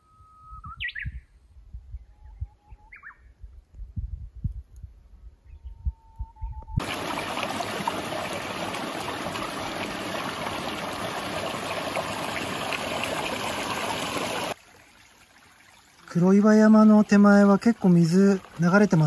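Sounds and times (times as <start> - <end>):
stream water rushing and splashing: 6.8 - 19.0.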